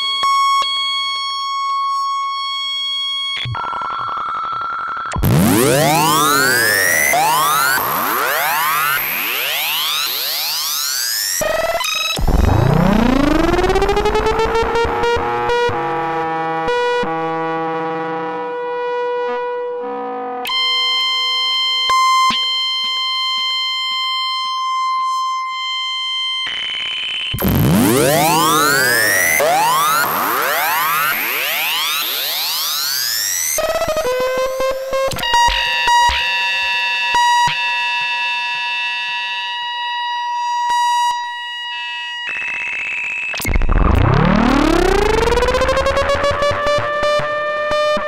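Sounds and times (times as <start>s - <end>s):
held electronic synthesizer tone: 5.2s - 10.0s, 27.4s - 32.6s
swooping synthesizer pitch sweeps: 5.2s - 10.9s, 12.2s - 15.7s, 27.4s - 33.8s, 43.8s - 48.0s
low synth note swooping up: 27.4s - 30.8s.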